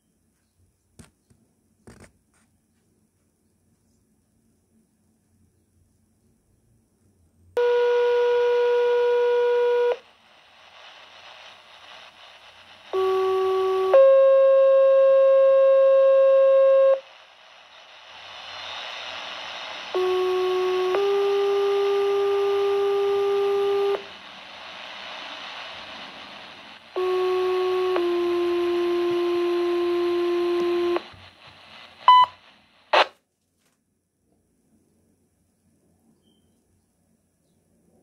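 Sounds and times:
burst of radio noise: 7.6s - 33.2s
radio receiver hiss: 7.6s - 33.2s
short high beep: 32.1s - 32.4s.

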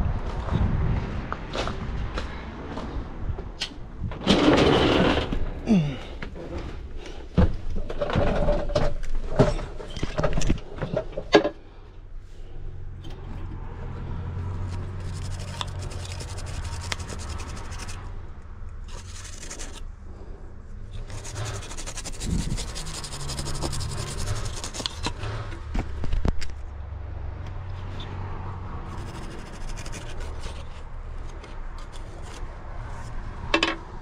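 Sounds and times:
brush scrubbing circuit board: 14.6s - 18.1s, 18.8s - 19.8s, 21.0s - 25.2s, 28.9s - 30.8s.

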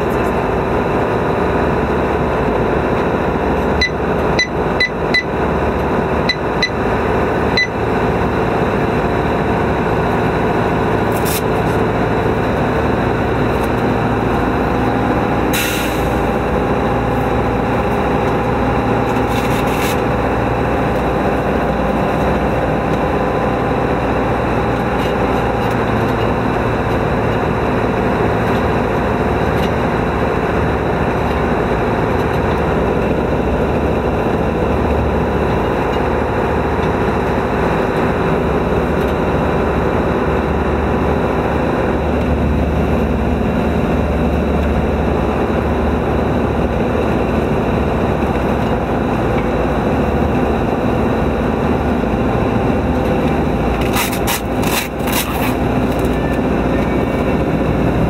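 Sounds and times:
engine and road noise: 0.0s - 58.0s
short hiss: 15.5s - 16.2s.

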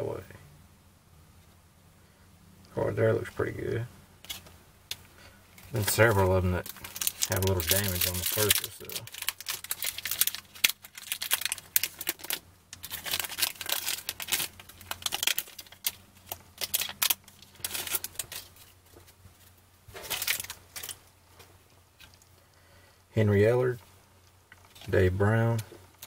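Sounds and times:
foil wrapper crinkling and tearing: 5.6s - 19.2s, 19.9s - 21.1s.

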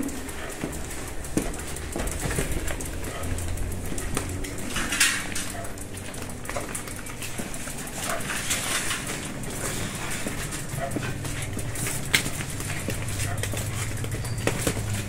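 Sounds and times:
bicycle parts rattling: 0.0s - 15.0s.

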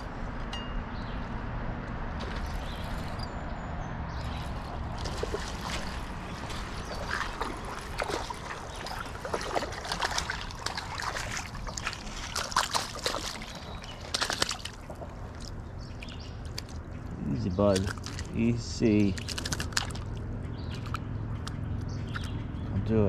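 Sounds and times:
fish splashing: 4.2s - 22.4s
creek rushing: 4.3s - 16.8s
footsteps on loose cobbles: 4.8s - 15.6s, 19.0s - 20.2s.

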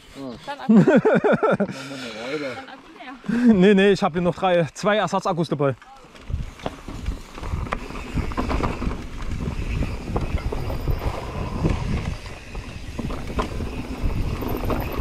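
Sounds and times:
bike knocking and rattling: 5.7s - 15.0s
tyres rumbling over dirt: 6.1s - 15.0s
wind buffeting microphone: 6.2s - 15.0s.

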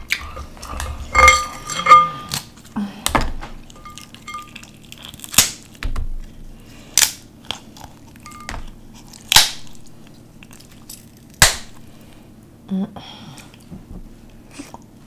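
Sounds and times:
seafood shells cracking: 3.6s - 6.0s, 6.9s - 12.1s.

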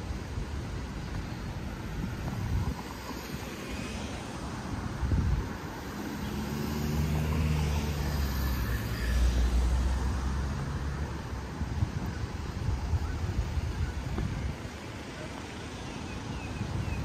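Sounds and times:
street traffic: 0.0s - 17.0s
vehicle engine passing close: 5.8s - 11.7s.

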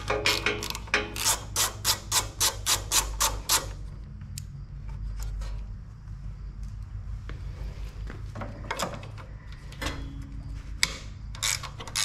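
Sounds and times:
socket wrench ratcheting: 0.0s - 3.7s, 11.4s - 12.0s
steady low hum: 0.0s - 11.9s.

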